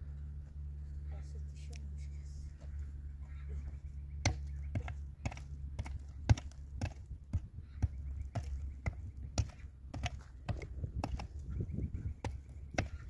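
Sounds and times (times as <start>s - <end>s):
hand tool striking concrete block: 8.3s - 11.3s.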